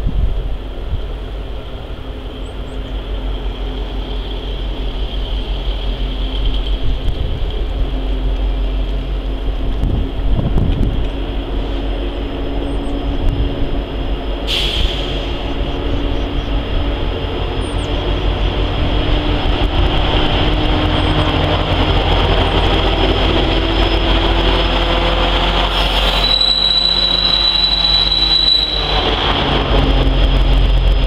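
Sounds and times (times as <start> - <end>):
train wheels on track: 0.0 - 31.0
high wheel squeal: 23.1 - 31.0.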